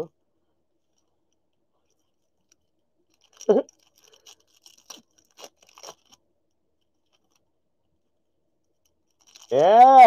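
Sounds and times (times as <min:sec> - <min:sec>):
foil pack tearing and crinkling: 0:03.1 - 0:06.2, 0:09.2 - 0:09.6.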